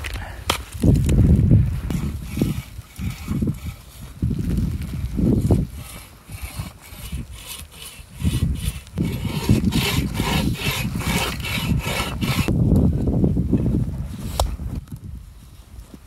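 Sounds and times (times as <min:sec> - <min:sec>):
bow saw cutting log: 0:01.9 - 0:04.1, 0:04.9 - 0:12.5.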